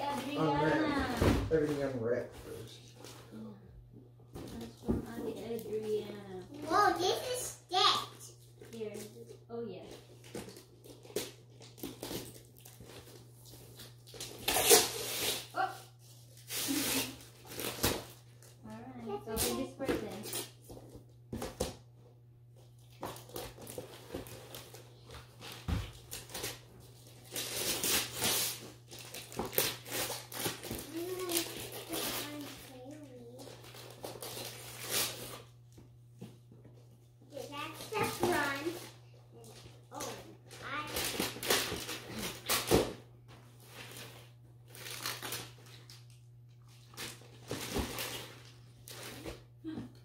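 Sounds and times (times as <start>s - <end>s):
wrapping paper rustling and tearing: 9.9s - 18.6s, 22.7s - 35.6s, 37.3s - 42.9s, 43.6s - 49.5s.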